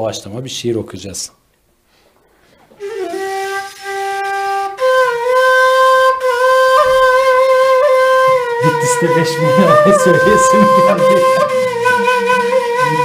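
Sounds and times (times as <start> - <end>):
woodwind long held notes: 2.8 - 13.0.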